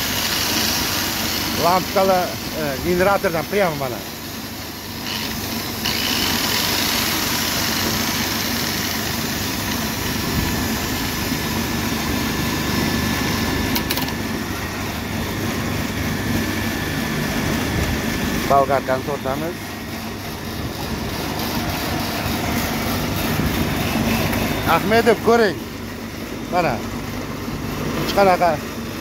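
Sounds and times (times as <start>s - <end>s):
angle grinder spinning: 0.0s - 12.5s, 19.2s - 25.5s.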